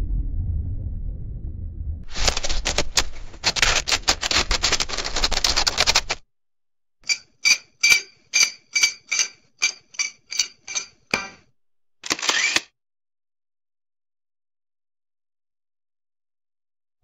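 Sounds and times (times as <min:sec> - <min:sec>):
rapid camera clicking: 0:02.1 - 0:06.2, 0:12.0 - 0:12.7
sharp metallic tripod clicks: 0:12.0 - 0:12.7.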